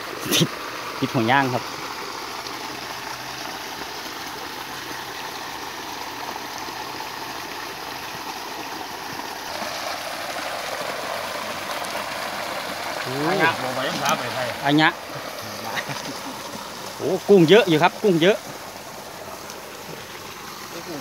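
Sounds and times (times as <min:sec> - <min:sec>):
creek water rushing: 0:00.0 - 0:21.0
water draining into bucket: 0:09.4 - 0:21.0.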